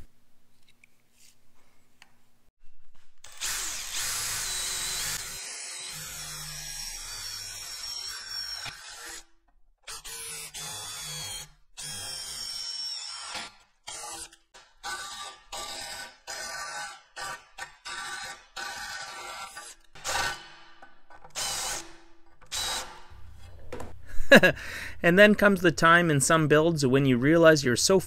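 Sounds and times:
cordless drill boring through aluminum: 3.2 - 9.3, 9.9 - 20.4, 21.4 - 23.1.

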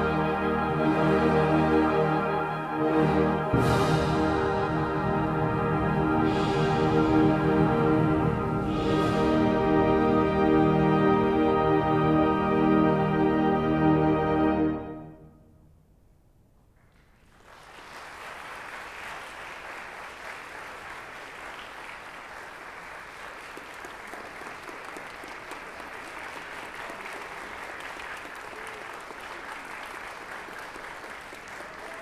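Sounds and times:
music: 0.0 - 16.0
audience applause: 17.2 - 32.0.

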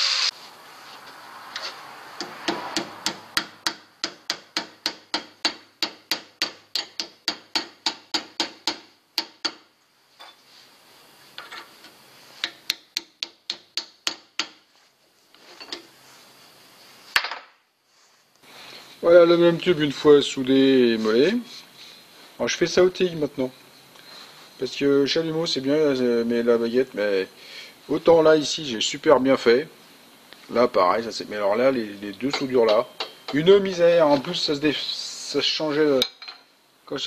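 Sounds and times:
hammer striking metal tube: 2.5 - 9.6, 32.3 - 33.4.

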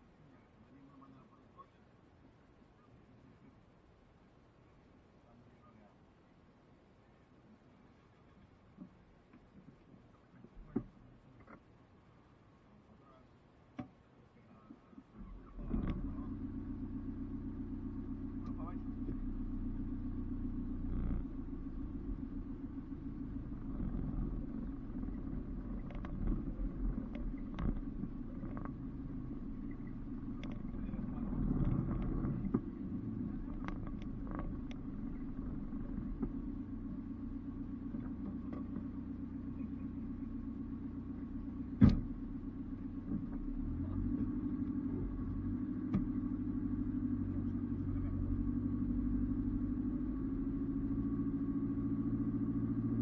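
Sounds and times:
engine running at low revs: 14.5 - 53.0.

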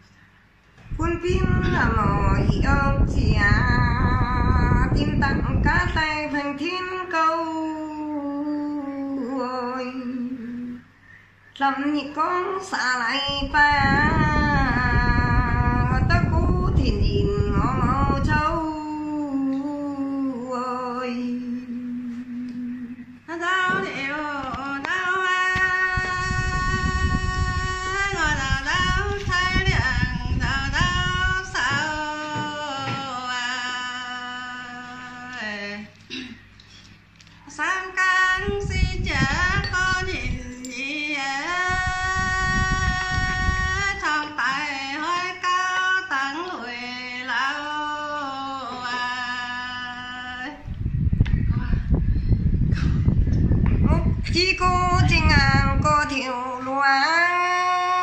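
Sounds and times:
woman singing long notes: 0.9 - 10.9, 11.6 - 36.0.

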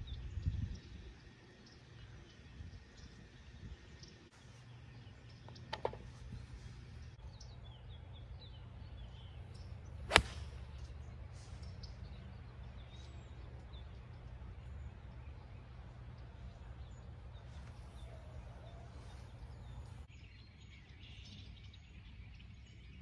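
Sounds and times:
low wind rumble: 0.0 - 5.4
golf club striking ball: 10.0 - 10.8.

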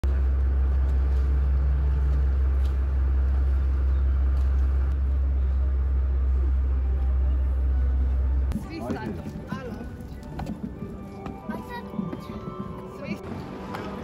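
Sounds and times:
faint hum: 0.0 - 8.6
boat engine droning: 0.0 - 14.0.

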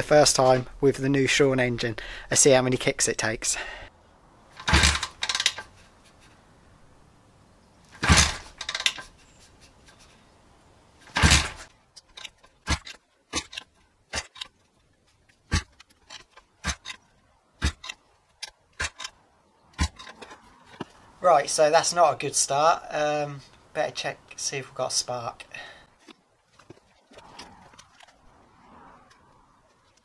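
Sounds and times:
motorbike engine kick-start clatter: 4.6 - 5.6, 8.0 - 9.0, 11.1 - 13.6.

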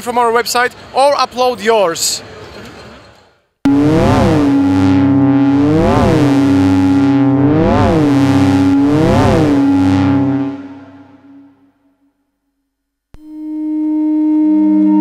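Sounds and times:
synthesizer drone with sweeps: 3.7 - 11.9.

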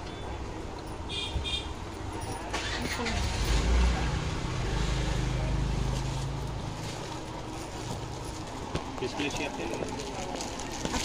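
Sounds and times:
motor vehicle engine rumble: 1.8 - 9.2.

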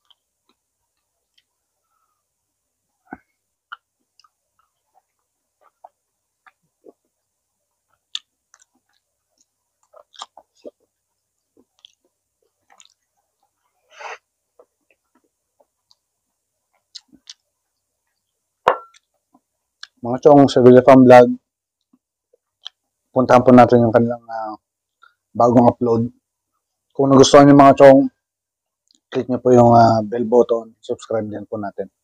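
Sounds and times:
person chewing with wet smacks: 3.1 - 13.8, 14.5 - 16.1, 16.7 - 18.3, 18.9 - 20.0, 21.8 - 23.0, 28.8 - 29.2.

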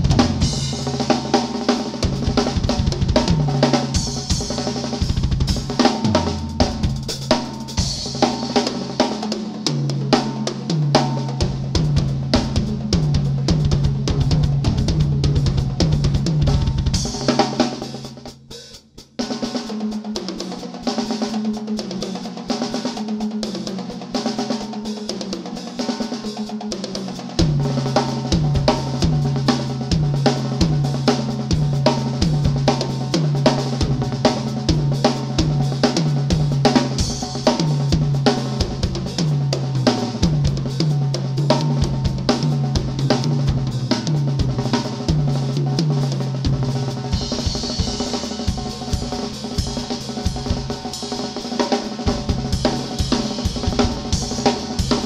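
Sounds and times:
rapid bass drum strokes: 0.0 - 55.0
snare tom and cymbal hits: 0.0 - 55.0.

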